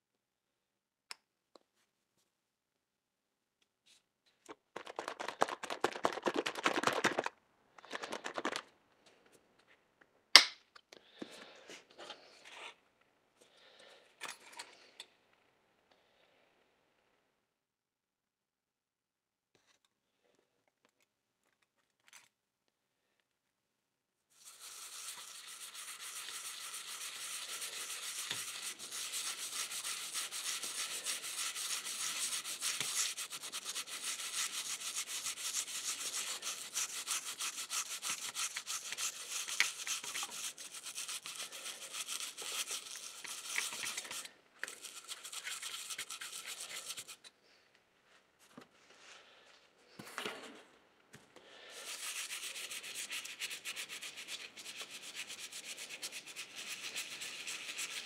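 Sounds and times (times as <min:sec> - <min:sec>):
handling sounds: 0:04.4 - 0:08.7
toothbrush scrubbing metal: 0:24.4 - 0:47.3, 0:51.8 - 0:58.0.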